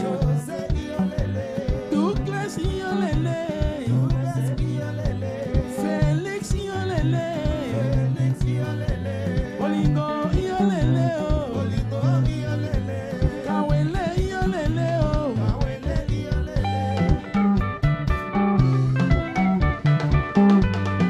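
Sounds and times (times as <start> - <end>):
man singing: 0.0 - 17.4
electric guitars: 0.0 - 21.0
repeating bass line: 0.0 - 21.0
steady drum beat: 0.0 - 21.0.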